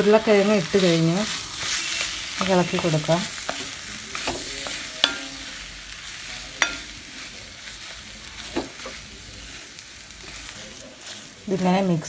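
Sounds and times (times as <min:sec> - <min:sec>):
light sizzle: 0:00.0 - 0:12.0
spatula stirring and mashing: 0:00.0 - 0:12.0
spatula knocking against pan: 0:05.0 - 0:05.4.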